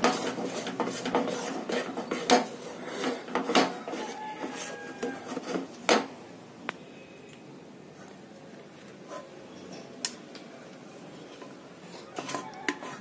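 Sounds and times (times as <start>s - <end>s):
wooden spatula scraping a pan: 0.0s - 6.1s, 8.8s - 9.9s, 11.1s - 13.0s.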